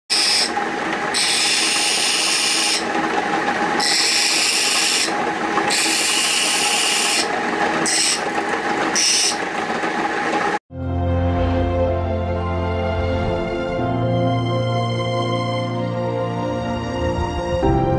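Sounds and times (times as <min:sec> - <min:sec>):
chisel grinding hiss: 0:00.1 - 0:02.8, 0:03.8 - 0:05.1, 0:05.7 - 0:07.3
grinding wheel motor hum: 0:00.1 - 0:10.6.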